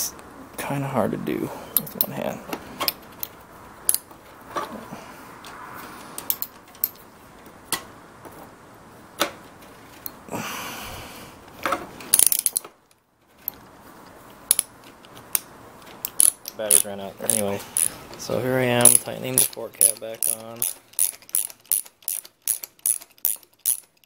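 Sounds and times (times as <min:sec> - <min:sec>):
ratchet wrench clicking: 0:06.2 - 0:07.0, 0:12.1 - 0:12.6, 0:14.5 - 0:24.0.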